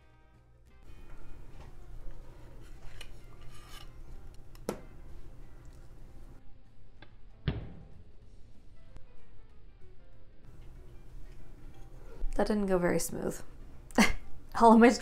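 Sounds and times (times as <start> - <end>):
metal utensils scraping a plate: 2.4 - 4.4.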